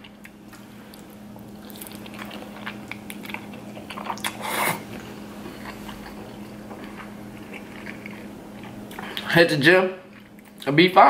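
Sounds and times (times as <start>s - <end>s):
wet chewing and mouth clicks: 0.0s - 4.7s, 5.4s - 9.3s, 10.0s - 10.7s
faint steady hum: 0.0s - 11.0s.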